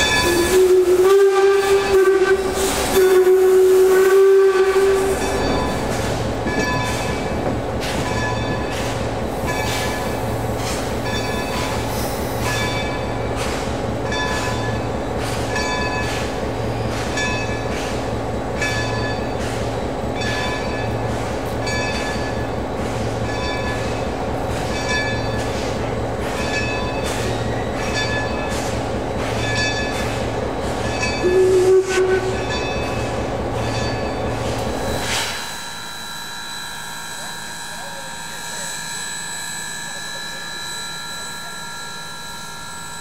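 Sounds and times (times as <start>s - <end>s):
steam whistle blast: 0.0s - 5.8s, 31.2s - 32.6s, 34.9s - 43.0s
steam locomotive chuffing: 0.0s - 43.0s.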